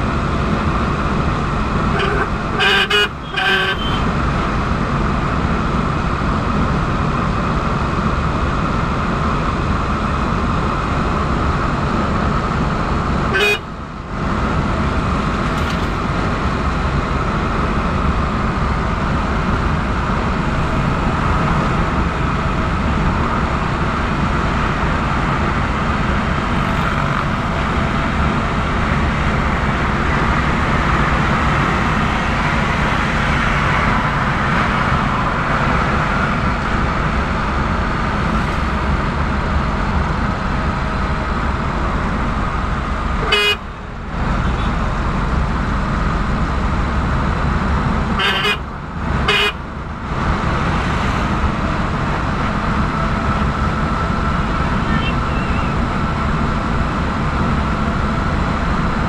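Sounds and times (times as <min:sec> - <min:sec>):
vehicle engine and road noise: 0:00.0 - 0:59.0.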